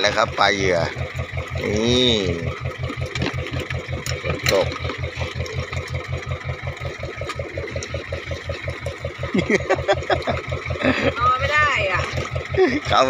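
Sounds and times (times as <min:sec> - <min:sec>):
boat engine idling: 0:00.0 - 0:13.0
fish flapping on wet deck: 0:02.7 - 0:09.2.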